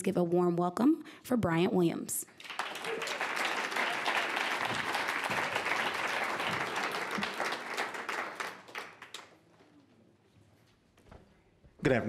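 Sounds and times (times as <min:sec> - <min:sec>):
audience applauding: 0:02.4 - 0:09.5.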